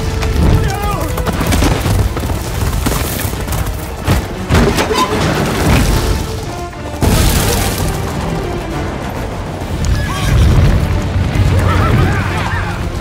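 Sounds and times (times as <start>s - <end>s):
orchestral film music: 0.0s - 13.0s
heavy booms and crashing impacts: 4.5s - 13.0s.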